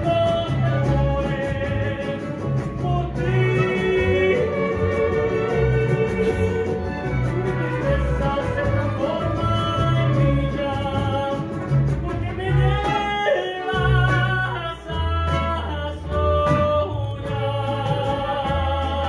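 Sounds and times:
man singing into a microphone: 0.0 - 19.0
mariachi band playing: 0.0 - 19.0.

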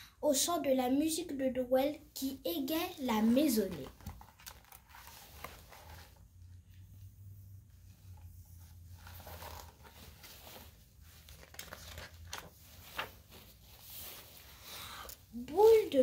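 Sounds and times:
paper pages rustling: 3.2 - 6.6, 7.9 - 14.6.

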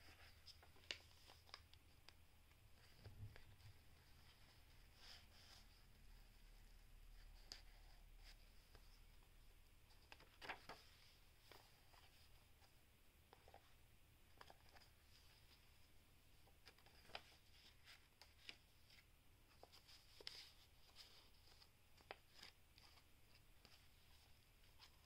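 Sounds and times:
faint steady hiss: 0.0 - 25.0
paper rustling and clicks: 10.0 - 10.8.

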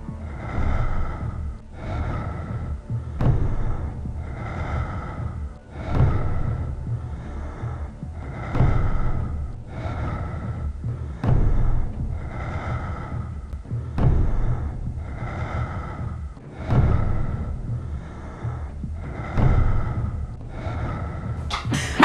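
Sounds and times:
low rumble: 0.0 - 22.0
person breathing heavily: 0.0 - 22.0.

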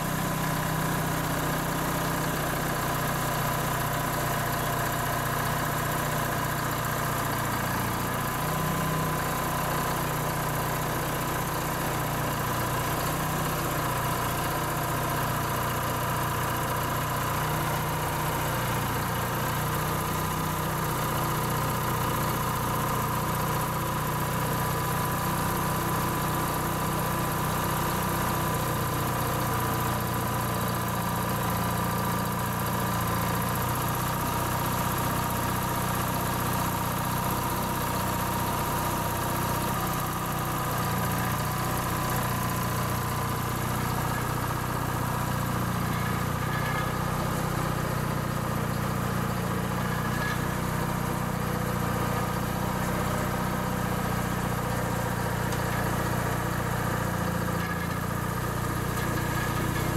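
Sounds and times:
crane engine running: 37.2 - 59.9.

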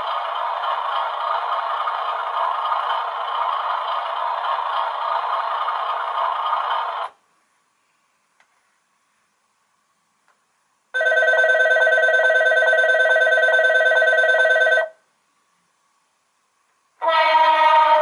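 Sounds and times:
electronic bell ringing: 11.0 - 15.0
second ringing tone: 11.0 - 15.0.

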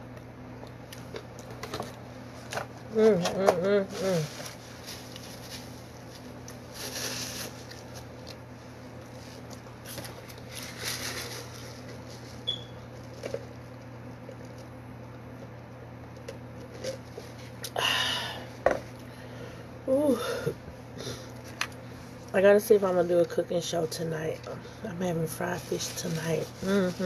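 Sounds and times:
steady low hum: 0.0 - 27.0
paper napkin crumpling: 3.8 - 8.3, 9.0 - 13.6, 25.3 - 27.0.

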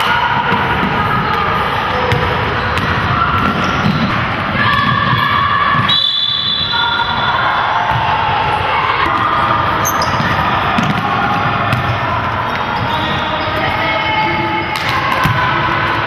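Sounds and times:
basketball bouncing on wooden court: 2.0 - 5.9, 9.8 - 13.2.

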